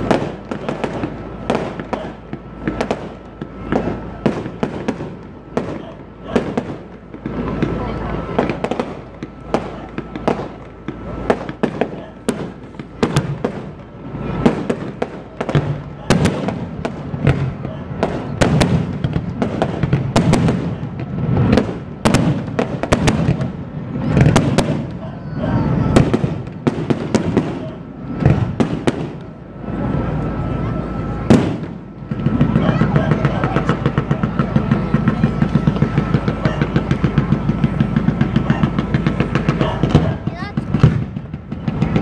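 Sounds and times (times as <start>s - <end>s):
fireworks banging: 0.0s - 42.0s.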